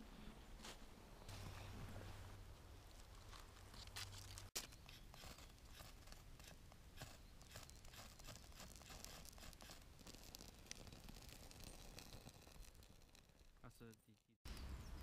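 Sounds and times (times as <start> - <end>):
knife carving wood: 3.9 - 13.6.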